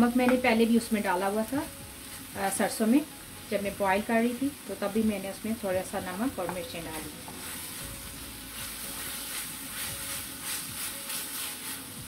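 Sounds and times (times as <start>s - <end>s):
masala sizzling in frying pan: 0.0s - 12.0s
spatula scraping pan: 8.6s - 11.9s.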